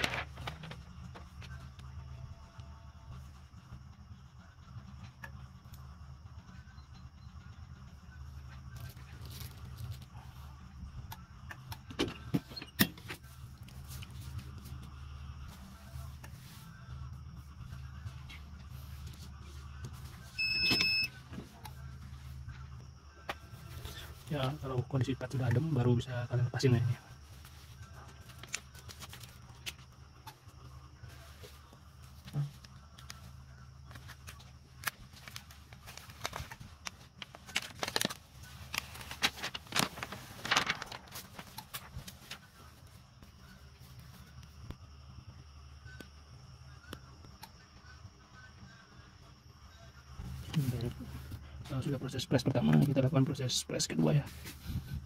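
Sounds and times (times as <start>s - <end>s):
plastic film crackling: 0.0s - 0.8s, 34.0s - 42.5s
steady low hum: 0.0s - 55.0s
hands rustling fabric: 35.1s - 42.4s.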